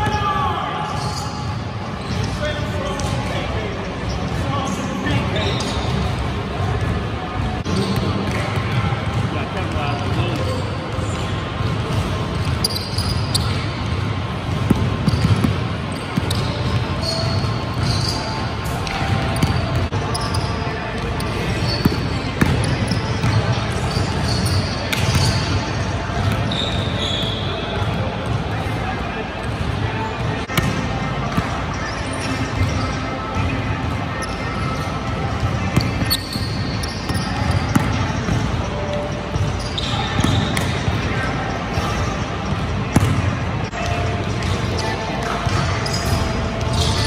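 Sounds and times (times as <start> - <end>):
shoe squeaks: 0.8 - 6.2, 12.4 - 13.9, 15.0 - 27.8, 31.4 - 33.5, 34.1 - 35.1, 35.7 - 47.0
basketball bouncing on gym floor: 14.4 - 18.1, 18.8 - 20.0, 21.5 - 25.6, 35.4 - 38.6, 39.3 - 41.0, 42.9 - 43.3.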